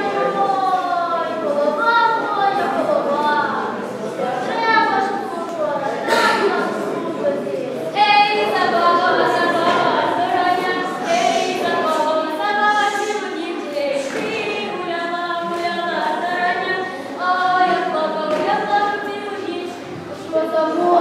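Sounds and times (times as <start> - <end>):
women singing unaccompanied: 0.0 - 7.2, 7.9 - 21.0.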